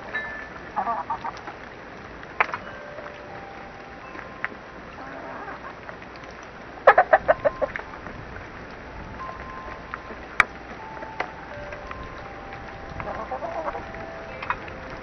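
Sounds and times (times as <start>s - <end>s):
chickens clucking: 5.0s - 5.8s, 6.8s - 7.8s, 13.0s - 14.7s.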